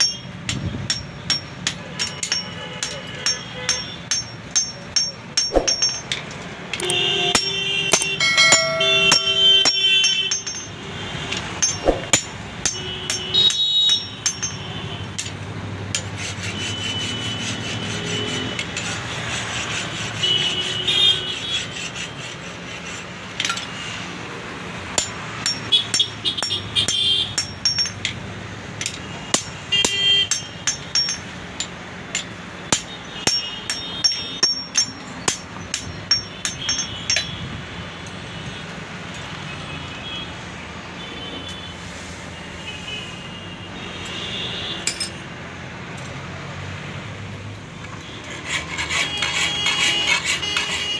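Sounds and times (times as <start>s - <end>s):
hammer striking blade on anvil: 0.0s - 6.2s, 6.8s - 18.9s, 25.0s - 28.2s, 28.8s - 37.4s, 48.5s - 50.8s.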